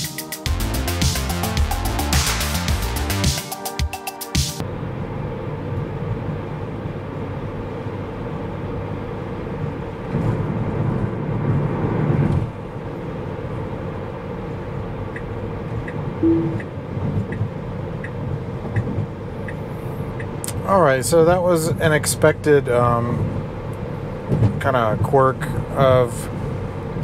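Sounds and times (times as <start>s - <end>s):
short beep: 16.2s - 16.8s
tyre and road noise in car: 23.1s - 27.0s.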